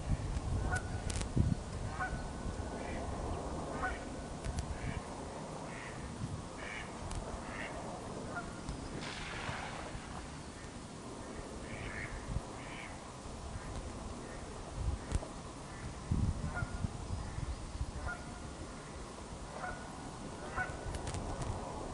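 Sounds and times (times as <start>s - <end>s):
steady low rumble: 0.0s - 21.9s
waterfowl calling: 1.9s - 2.2s, 3.7s - 4.1s, 5.7s - 6.0s, 6.6s - 8.6s, 18.0s - 18.4s, 19.6s - 20.8s
brief rush of noise: 9.0s - 10.5s.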